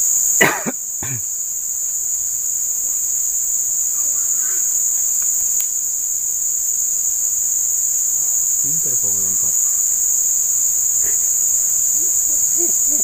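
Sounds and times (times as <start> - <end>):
high-pitched insect chorus: 0.0 - 13.0
faint click: 5.2 - 5.8.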